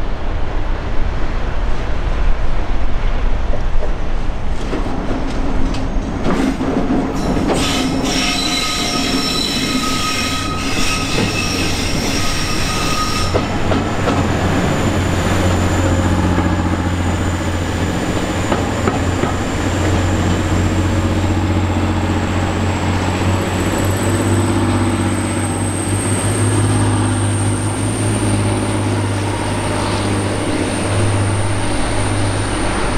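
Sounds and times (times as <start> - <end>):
wheel squeal: 7.2 - 13.5
diesel engine drone: 14.0 - 32.9.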